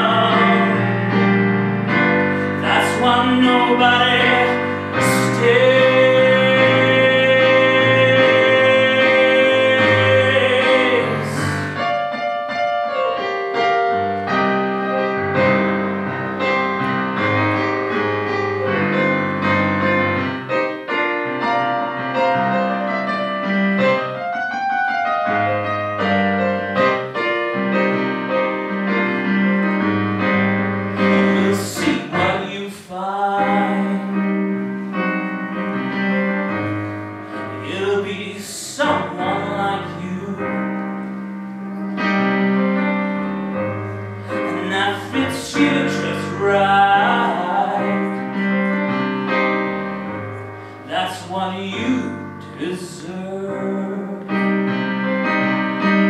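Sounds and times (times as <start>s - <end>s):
man singing: 0.0s - 1.3s, 2.3s - 11.8s, 31.0s - 34.6s, 37.4s - 41.0s, 44.3s - 48.8s, 50.8s - 54.8s
bluesy piano: 0.0s - 56.0s.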